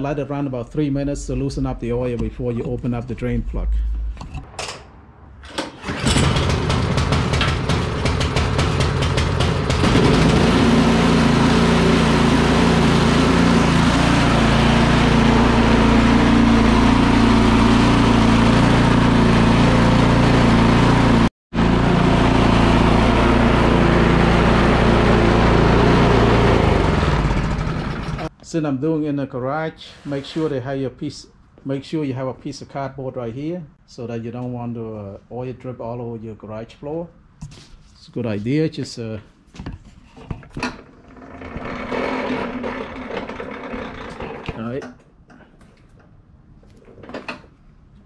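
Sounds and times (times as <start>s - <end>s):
snow blower engine running: 5.6s - 28.3s, 41.1s - 44.5s.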